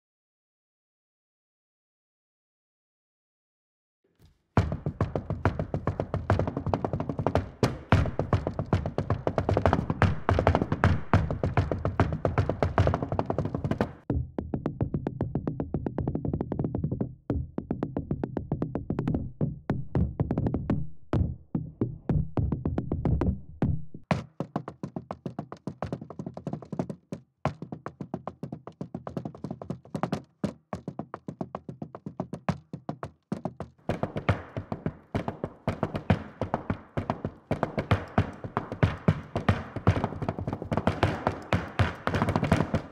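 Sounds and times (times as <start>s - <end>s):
tap shoes on floor: 4.2s - 14.1s, 24.1s - 42.9s.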